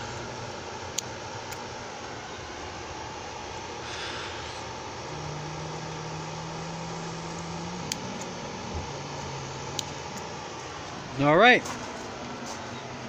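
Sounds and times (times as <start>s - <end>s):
background hum: 0.0s - 13.0s
low motor drone: 0.0s - 13.0s
trimmers snipping: 5.1s - 10.3s.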